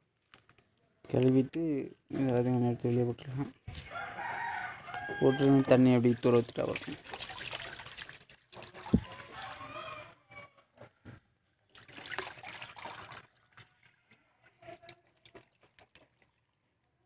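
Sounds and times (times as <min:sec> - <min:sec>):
water pouring into a drain: 0:05.9 - 0:09.8, 0:11.6 - 0:17.0.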